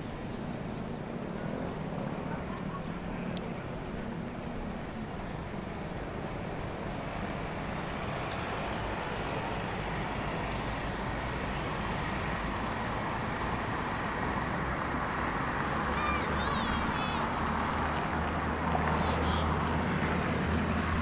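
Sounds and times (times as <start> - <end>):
cars driving past: 6.9 - 21.0.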